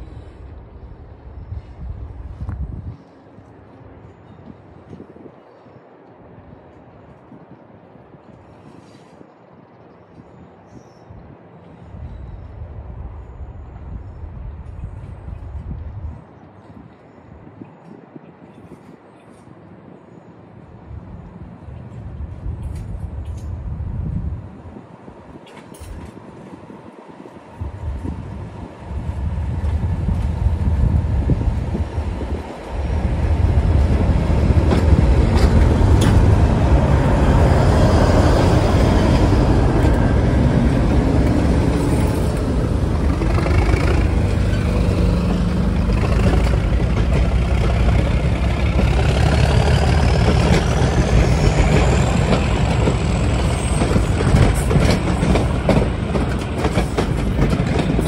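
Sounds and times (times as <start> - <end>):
diesel locomotive passing: 0.0 - 7.0, 18.8 - 58.0
wheels clicking over rail joints: 32.3 - 38.0, 38.6 - 58.0.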